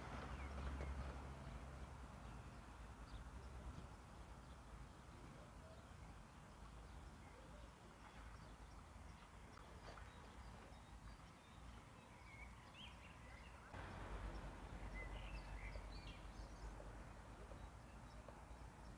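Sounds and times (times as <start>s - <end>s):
low rumble: 13.8s - 17.5s.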